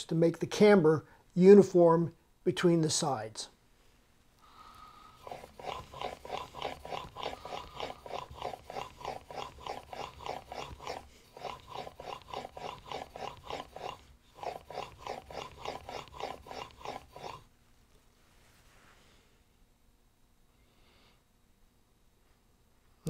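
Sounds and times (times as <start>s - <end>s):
blade rasping on whetstone: 5.2s - 17.4s.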